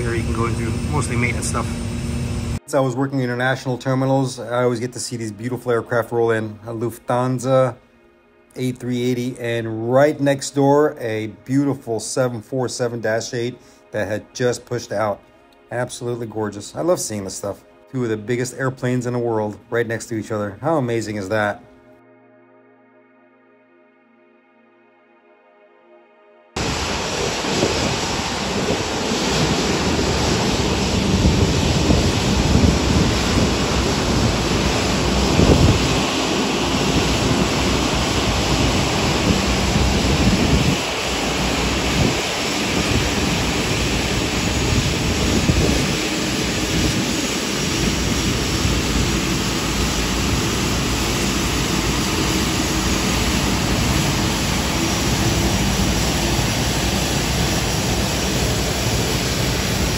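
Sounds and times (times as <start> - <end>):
jet engines humming: 0.0 - 19.3, 26.6 - 59.9
wind on microphone: 26.6 - 59.9.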